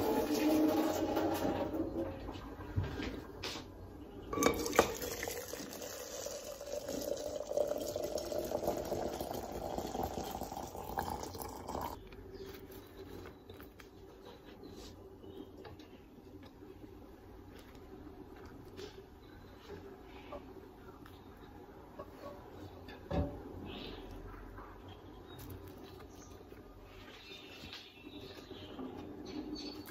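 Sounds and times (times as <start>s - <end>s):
water pouring into teapot: 4.4s - 12.0s.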